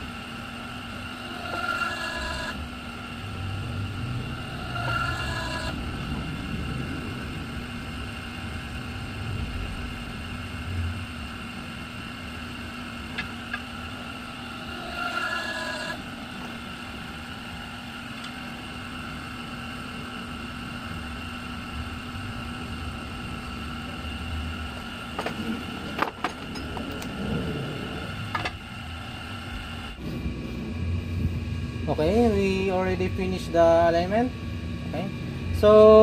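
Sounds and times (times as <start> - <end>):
high whine: 0.0 - 36.0
hydraulic press humming: 0.0 - 36.0
low rumble: 2.6 - 14.2, 18.8 - 36.0.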